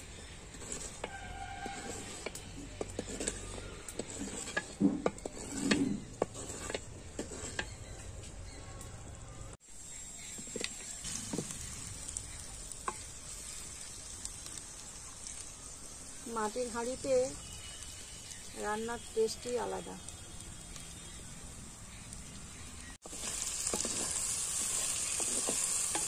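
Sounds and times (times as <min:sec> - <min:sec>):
wooden spatula scraping clay pot: 0:00.0 - 0:08.8, 0:23.1 - 0:26.0
fish sizzling in oil: 0:09.6 - 0:26.0.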